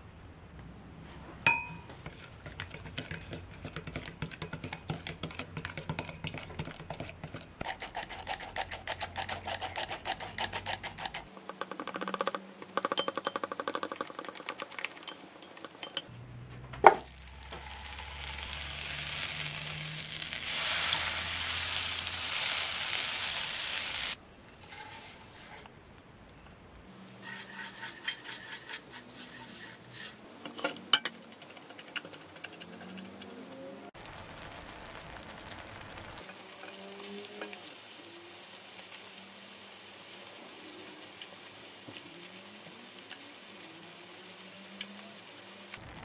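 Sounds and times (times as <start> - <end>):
whisk beating batter in a bowl: 2.0 - 11.3, 27.3 - 30.1
butter sizzling in a frying pan: 17.0 - 25.5, 34.0 - 46.0.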